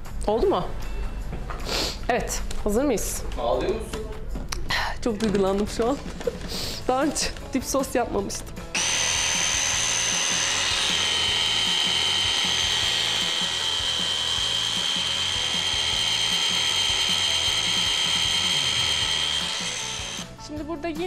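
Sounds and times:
electric hand blender whine: 8.8 - 20.4.

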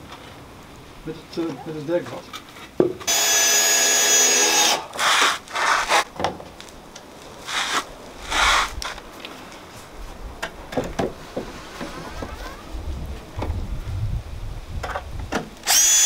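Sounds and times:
wooden plank rubbing on wood: 4.6 - 6.1, 7.4 - 9.0
short scrapes: 4.9 - 6.1, 7.4 - 9.0.

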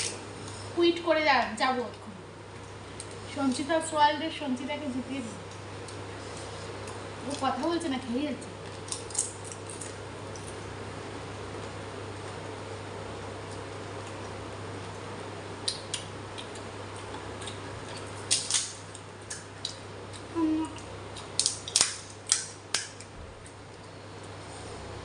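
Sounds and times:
steady low hum: 0.0 - 25.0
crispy shells cracking: 8.6 - 10.6, 15.6 - 23.6.

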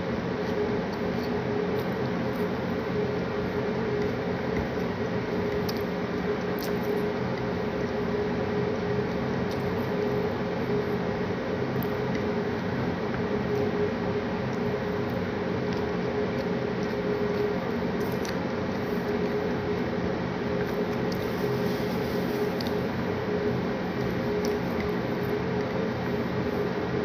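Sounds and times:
appliance hum: 0.0 - 27.0
soft eating clicks: 3.8 - 7.6, 14.4 - 21.3, 22.4 - 23.2, 23.9 - 26.4.

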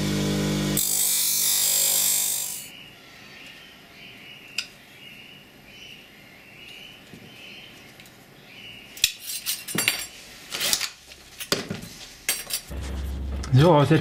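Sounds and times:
metal parts clinking on workbench: 9.0 - 11.6, 12.3 - 12.7.

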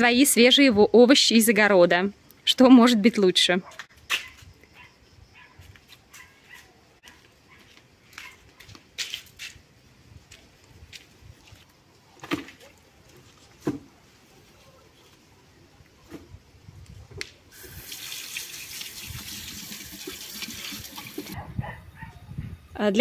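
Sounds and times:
dog barking: 3.6 - 8.4, 21.4 - 22.2.

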